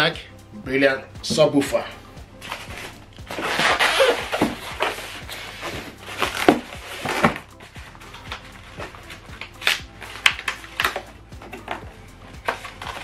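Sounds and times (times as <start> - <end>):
quiet background music: 0.0 - 13.0
foam packaging rustling: 2.4 - 11.8.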